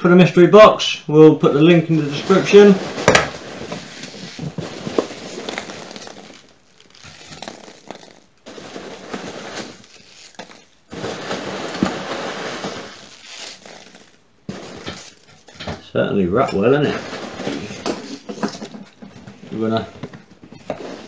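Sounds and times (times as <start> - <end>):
tape and cardboard ripping: 2.0 - 15.6.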